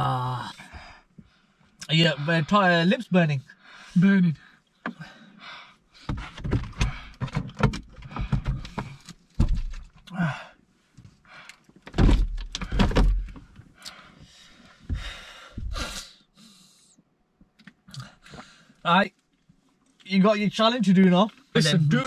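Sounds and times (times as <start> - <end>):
knocks and thumps in car cabin: 6.0 - 10.0, 11.8 - 13.6.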